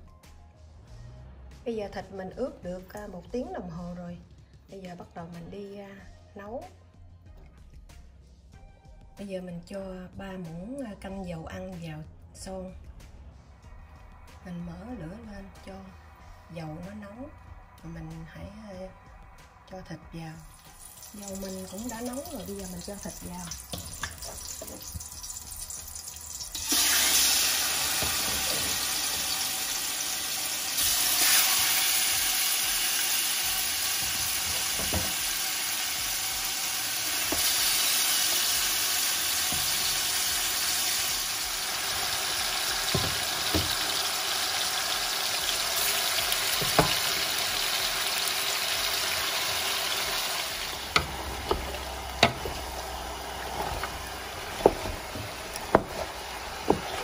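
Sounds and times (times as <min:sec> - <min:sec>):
meat sizzling in hot oil: 0:20.4 - 0:57.0
utensils knocking against pot: 0:27.8 - 0:29.3, 0:34.0 - 0:35.4, 0:42.9 - 0:44.0, 0:46.5 - 0:47.3, 0:50.7 - 0:57.0.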